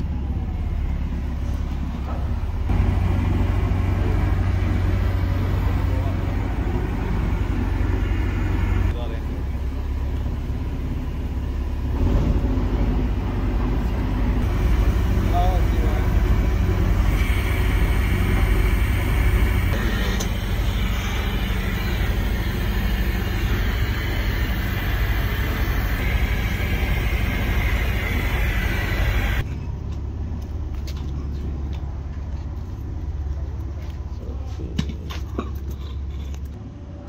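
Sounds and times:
low engine rumble: 0.0s - 37.0s
roller machine humming: 0.0s - 37.0s.

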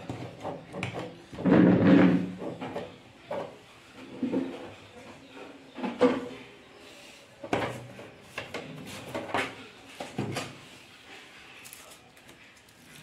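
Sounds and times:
knocks and scrapes on plastic: 0.0s - 4.7s.

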